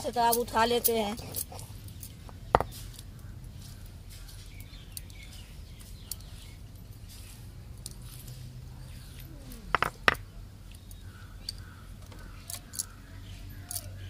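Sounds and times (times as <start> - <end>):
bird chirps: 2.3 - 7.4
stone knocking on stone: 2.5 - 2.8, 9.7 - 10.2.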